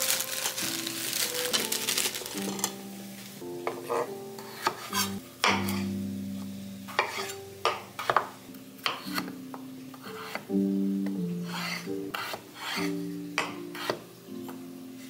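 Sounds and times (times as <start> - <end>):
soft background music: 0.0 - 15.0
knife chopping on wooden board: 13.4 - 14.0.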